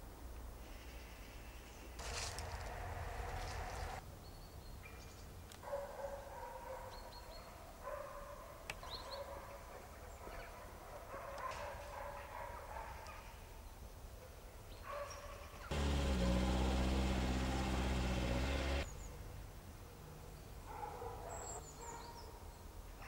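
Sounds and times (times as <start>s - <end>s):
dog barking: 4.9s - 13.5s, 14.2s - 18.8s, 20.6s - 22.4s.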